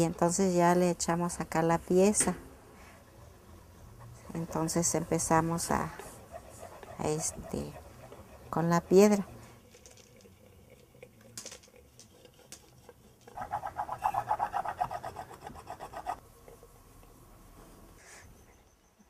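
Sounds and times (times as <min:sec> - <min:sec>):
stone rasping on clay: 0:05.6 - 0:09.5, 0:10.2 - 0:16.2.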